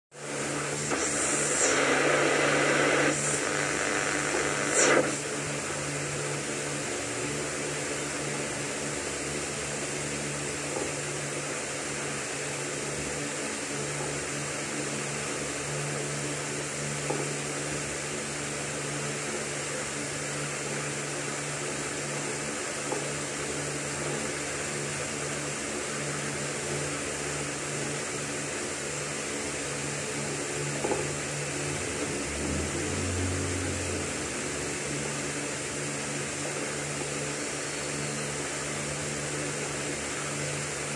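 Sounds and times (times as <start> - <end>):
radio static hiss: 0.1 - 40.9
radio crackle: 0.2 - 6.8
low hum: 29.5 - 38.6.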